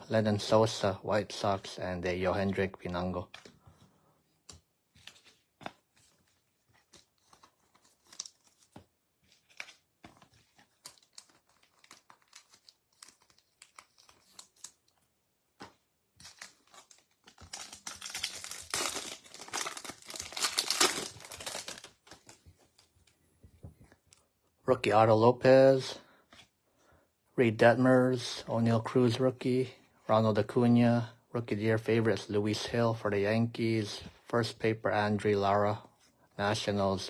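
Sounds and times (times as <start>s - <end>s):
card pack wrapper crinkling: 4.9s - 23.2s.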